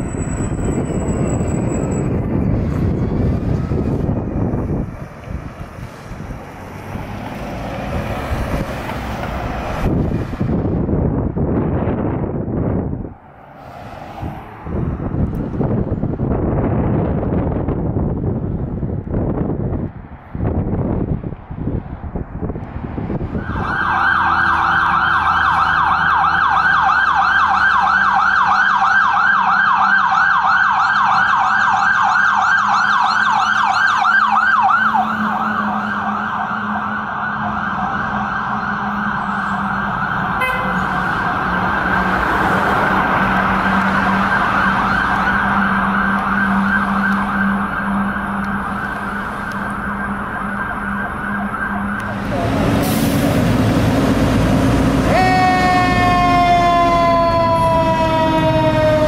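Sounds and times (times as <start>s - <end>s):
fire truck siren yelping: 23.1s - 59.0s.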